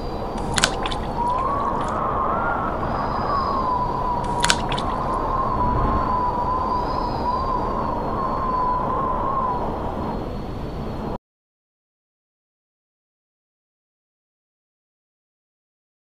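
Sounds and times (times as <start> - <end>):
wind noise: 0.0 - 11.2.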